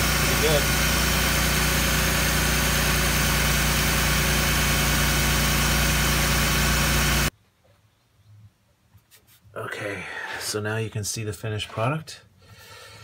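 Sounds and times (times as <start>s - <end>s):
car engine idling: 0.0s - 7.3s.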